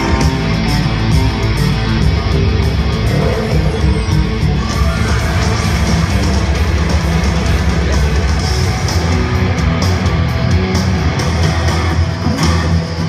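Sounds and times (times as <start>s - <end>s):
loud rock music: 0.0s - 13.0s.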